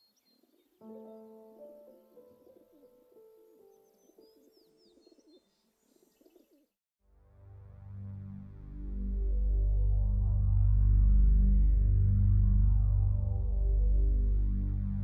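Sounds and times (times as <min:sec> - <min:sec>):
birdsong chirps: 0:00.0 - 0:06.8
soft held chord: 0:00.8 - 0:05.0
dove cooing: 0:02.2 - 0:03.0
low pulsing hum: 0:07.3 - 0:15.0.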